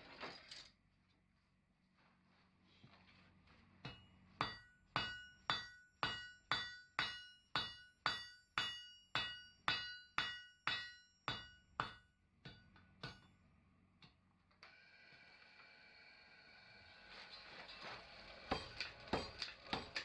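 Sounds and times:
hammer striking steel on anvil: 3.8 - 13.4, 18.5 - 20.0.

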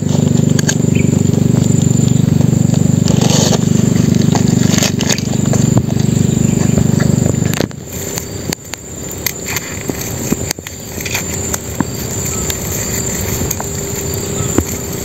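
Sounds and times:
small clicks and rustles: 7.5 - 15.0
hands tying crab with cord: 7.9 - 15.0.

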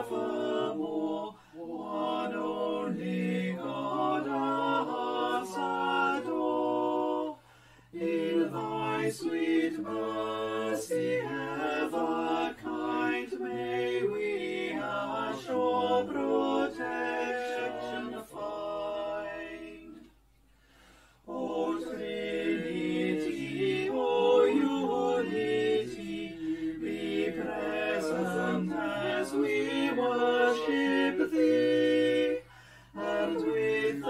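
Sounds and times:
person singing unaccompanied: 0.0 - 6.9, 33.0 - 34.0.

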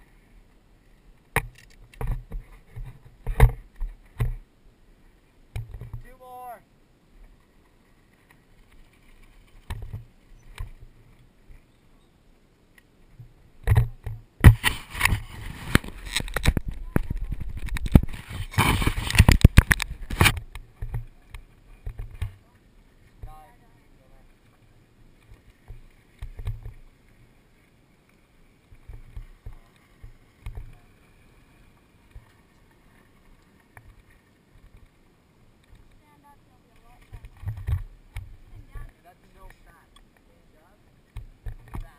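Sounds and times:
wind buffeting microphone: 15.0 - 20.6.

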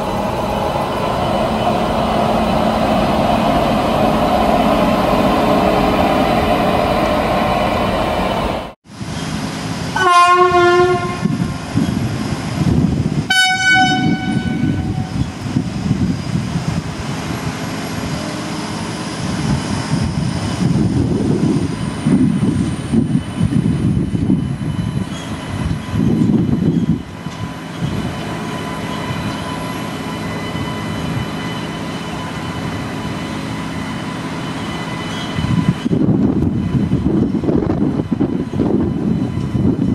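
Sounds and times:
locomotive rumble: 0.0 - 10.0
locomotive horn blast: 10.0 - 11.3, 13.3 - 15.1.

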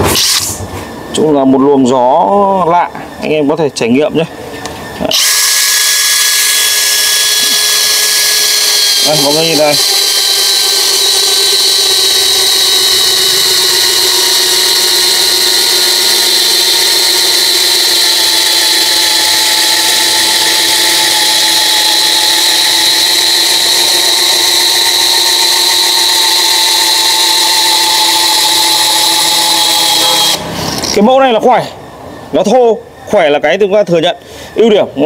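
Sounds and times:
cordless drill boring into wood: 5.1 - 30.9.

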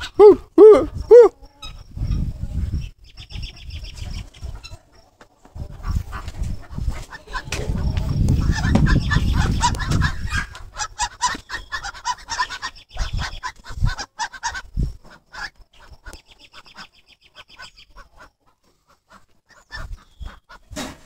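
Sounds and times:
ducks quacking: 4.1 - 20.9
low thumps: 7.5 - 10.0.

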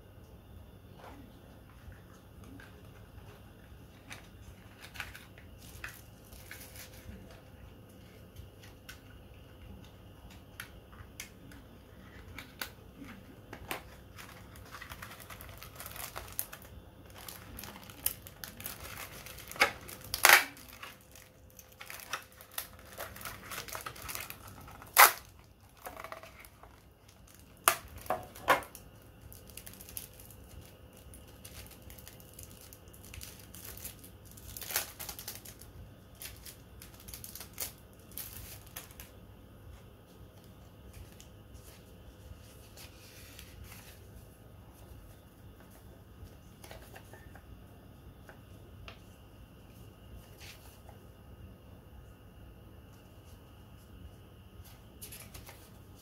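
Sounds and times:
packaging crinkling and tearing: 4.0 - 7.3, 12.0 - 39.2.

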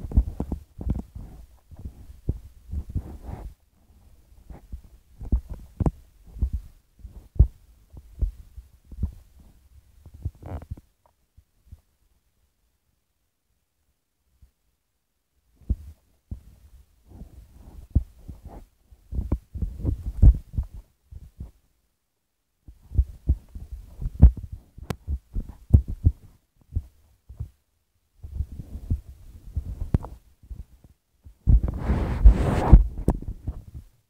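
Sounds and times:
microphone handling thumps and rubbing: 0.0 - 3.6, 4.4 - 10.9, 15.6 - 21.6, 22.7 - 27.6, 28.2 - 34.0.

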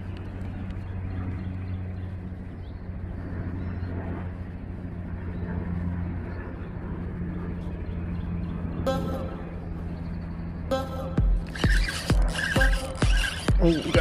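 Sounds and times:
rushing background noise: 0.0 - 14.0
motor humming: 8.9 - 14.0.

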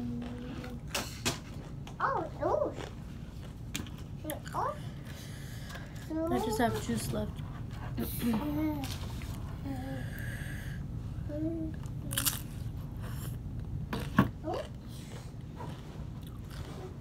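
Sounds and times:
crunchy chewing: 12.1 - 13.4, 14.0 - 17.0.

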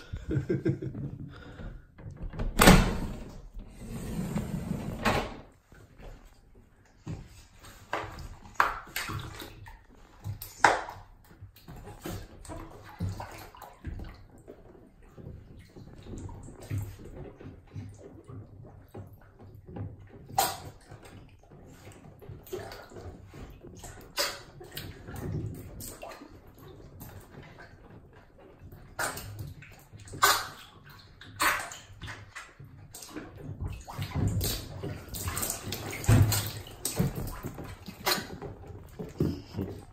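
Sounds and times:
otter splashing in water: 28.6 - 39.5.

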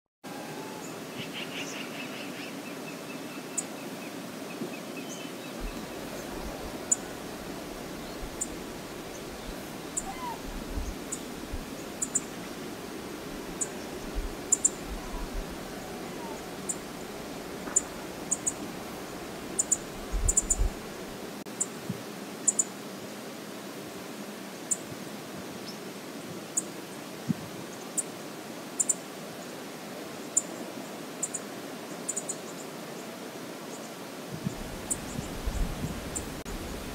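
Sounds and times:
river water rushing: 2.2 - 27.2
bird call: 9.9 - 10.4, 14.5 - 16.8.

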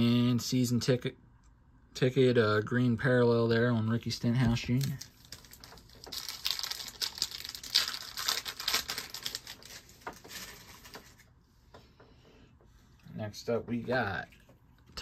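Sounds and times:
wrapper crinkling: 4.6 - 11.3.

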